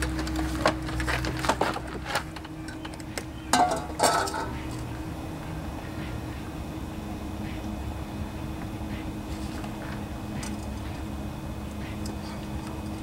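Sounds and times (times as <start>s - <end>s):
metal bowl clanking against mower deck: 2.7s - 4.8s.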